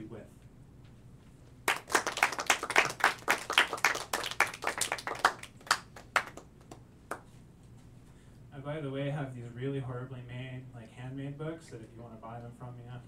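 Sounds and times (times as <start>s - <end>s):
people clapping: 1.6s - 7.4s.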